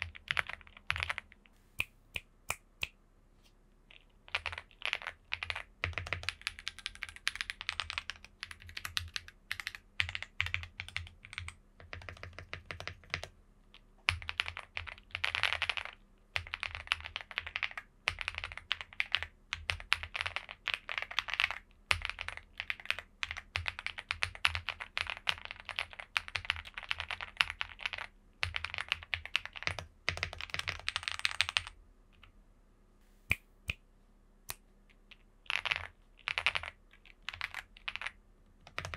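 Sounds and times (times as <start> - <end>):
mechanical keyboard typing clacks: 4.3 - 13.3, 14.1 - 31.7, 35.5 - 38.9.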